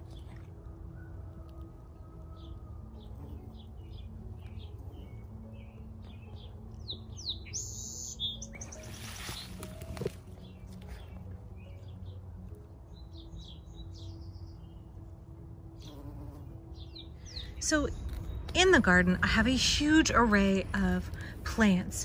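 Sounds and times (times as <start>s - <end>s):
low steady hum: 0.0s - 7.2s, 17.1s - 22.0s
songbirds chirping: 0.0s - 22.0s.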